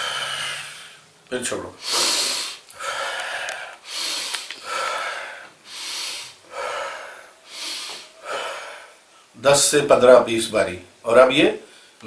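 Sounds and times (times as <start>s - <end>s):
man breathing forcefully through nose: 0.0s - 1.1s, 1.8s - 9.1s.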